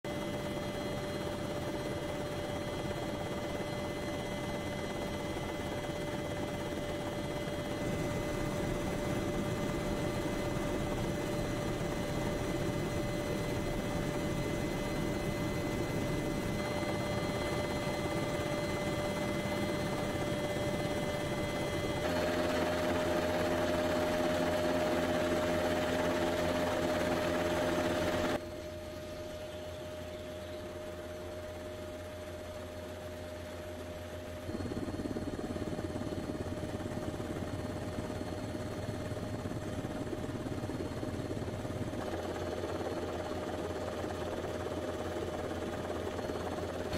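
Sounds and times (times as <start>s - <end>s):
aircraft engines droning: 0.1s - 46.9s.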